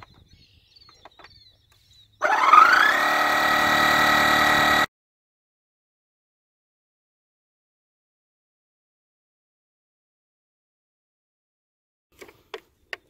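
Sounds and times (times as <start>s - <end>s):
tire inflator compressor motor: 2.2s - 4.9s.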